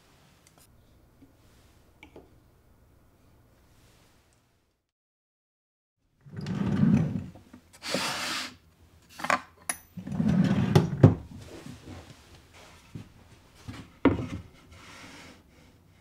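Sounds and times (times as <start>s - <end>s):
wooden drawer sliding: 6.3s - 8.2s, 10.0s - 12.1s.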